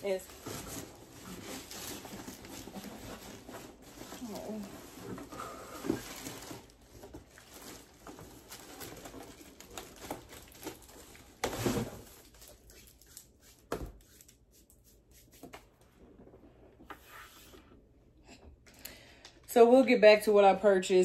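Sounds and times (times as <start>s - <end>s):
box contents rustling: 0.1s - 13.0s.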